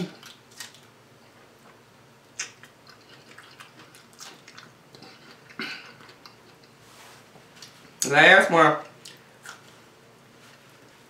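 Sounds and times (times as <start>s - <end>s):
wet chewing of strawberry: 0.0s - 6.8s, 8.8s - 9.9s.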